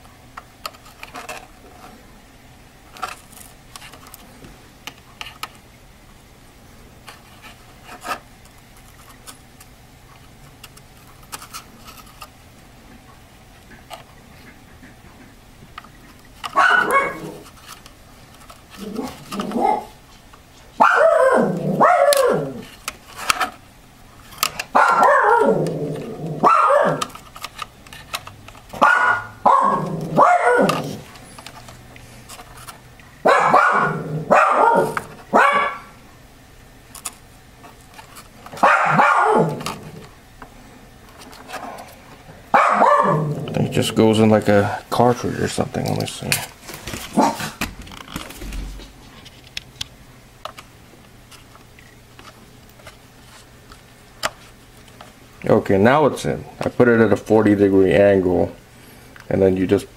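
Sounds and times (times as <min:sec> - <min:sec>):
dog barking: 0:16.6 - 0:17.4, 0:19.6 - 0:19.9, 0:20.8 - 0:22.6, 0:24.7 - 0:25.7, 0:26.4 - 0:27.1, 0:28.8 - 0:31.0, 0:33.2 - 0:35.9, 0:38.6 - 0:39.6, 0:42.5 - 0:43.4, 0:47.2 - 0:47.6.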